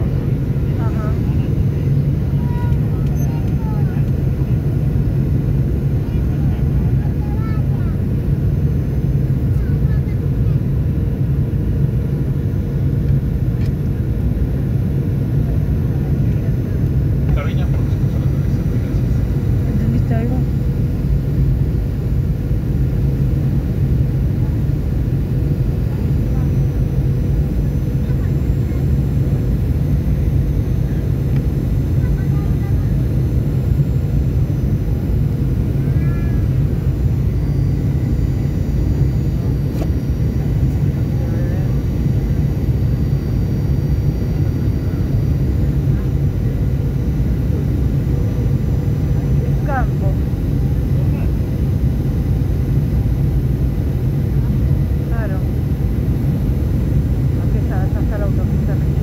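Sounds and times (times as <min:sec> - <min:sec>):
airplane cabin engine rumble: 0:00.0 - 0:59.0
faint steady hum: 0:13.0 - 0:59.0.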